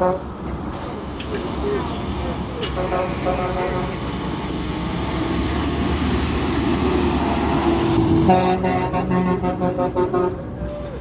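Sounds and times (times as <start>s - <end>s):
truck diesel engine rumble: 0.0s - 11.0s
truck horn short toots: 8.3s - 10.4s.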